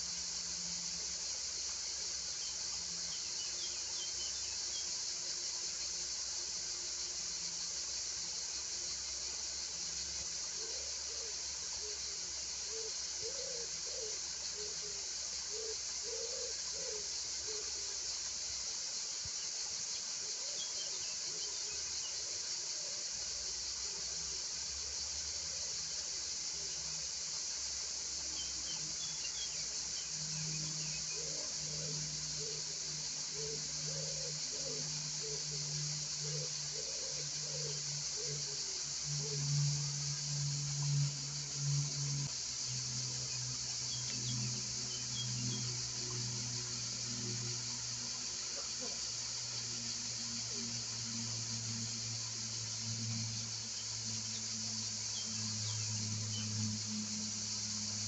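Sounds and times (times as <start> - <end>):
crickets chirring: 0.0 - 58.0.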